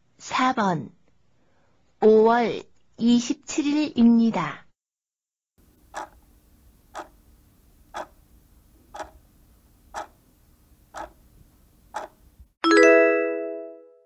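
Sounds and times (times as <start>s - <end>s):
clock ticking: 5.7s - 6.3s, 6.9s - 7.2s, 7.8s - 8.3s, 8.9s - 9.3s, 9.9s - 10.2s, 10.9s - 11.3s, 11.9s - 12.3s
bright chime ringing: 12.6s - 13.9s.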